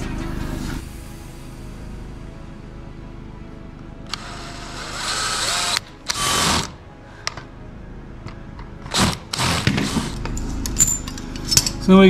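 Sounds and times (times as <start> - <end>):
cordless drill boring into wood: 4.1 - 6.8, 8.9 - 10.2
drill click: 4.1 - 7.4, 8.8 - 10.3.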